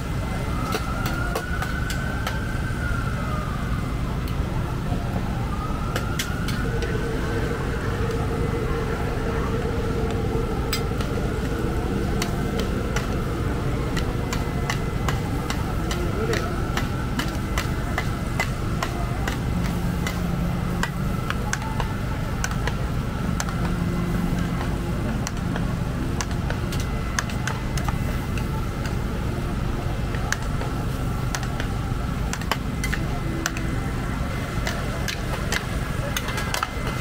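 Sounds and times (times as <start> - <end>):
faint constant whine: 0.0 - 37.0
faint voices: 0.0 - 37.0
low rumble: 2.8 - 29.8.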